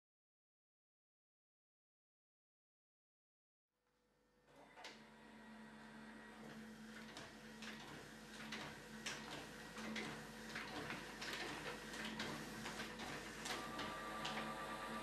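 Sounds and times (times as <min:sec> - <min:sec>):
electric lift motor humming: 0:04.5 - 0:15.0.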